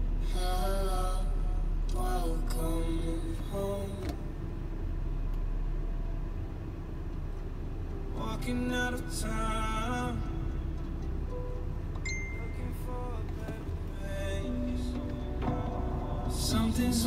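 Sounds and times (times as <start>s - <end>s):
car cabin rumble: 0.0s - 17.0s
song with singing: 0.2s - 4.3s, 8.1s - 11.0s, 12.2s - 17.0s.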